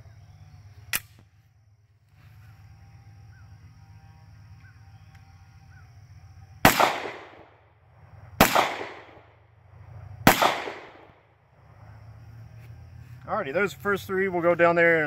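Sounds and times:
pistol shots with echo: 0:06.6 - 0:07.6, 0:08.4 - 0:09.3, 0:10.2 - 0:11.2.

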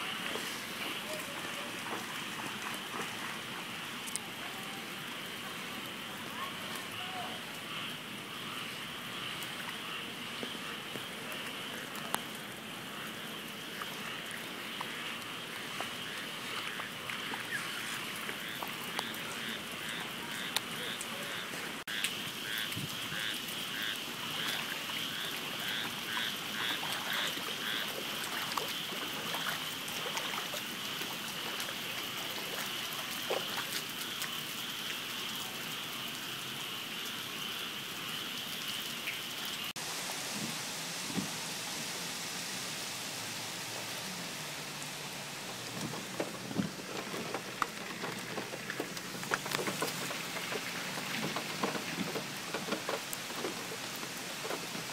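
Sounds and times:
rain falling on water: 0:00.0 - 0:54.9
frog chorus: 0:04.1 - 0:39.7
quick repeated frog calls: 0:18.4 - 0:29.7.

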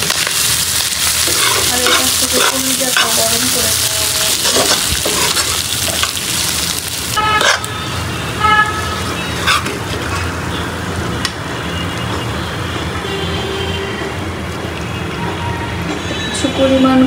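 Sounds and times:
food sizzling in a frying pan: 0:00.0 - 0:08.1
wooden spoon scraping a pan: 0:01.2 - 0:03.4, 0:04.3 - 0:05.6, 0:09.4 - 0:10.3.

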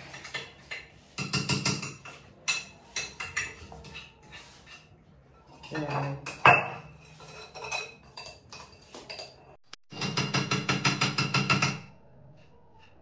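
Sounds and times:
dishes and utensils clinking: 0:00.0 - 0:11.7.

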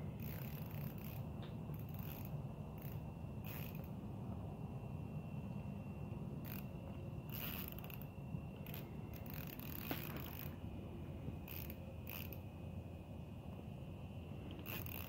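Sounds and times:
fishing reel clicking: 0:00.2 - 0:03.9, 0:06.4 - 0:06.7, 0:07.3 - 0:10.6, 0:11.4 - 0:12.4, 0:14.6 - 0:15.0.

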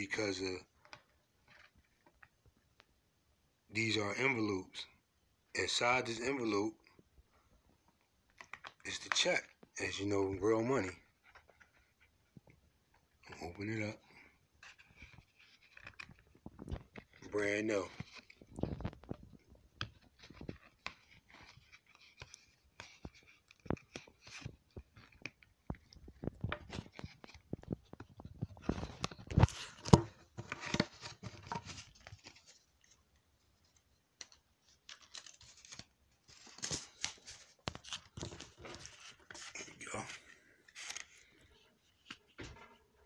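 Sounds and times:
paper and foil rustling: 0:34.7 - 0:41.4.

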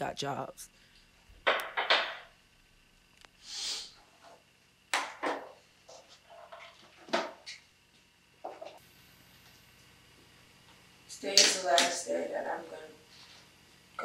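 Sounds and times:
short hiss: 0:03.4 - 0:04.0.

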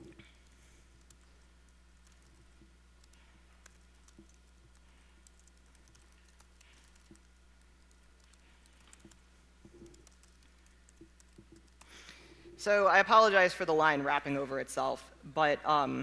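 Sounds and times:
keyboard typing clicks: 0:00.0 - 0:12.2
low steady hum: 0:00.0 - 0:16.0.

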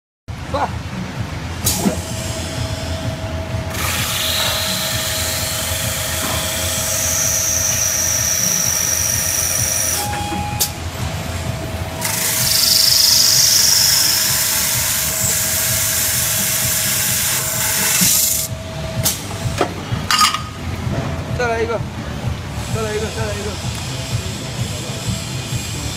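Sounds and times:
high grinding hiss on glass: 0:01.7 - 0:10.1, 0:11.9 - 0:18.5
drilling machine motor whine: 0:01.7 - 0:19.4.

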